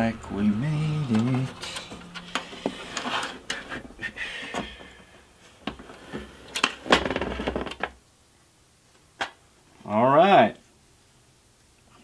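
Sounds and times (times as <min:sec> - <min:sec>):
board scraping metal chassis: 0:01.0 - 0:03.9.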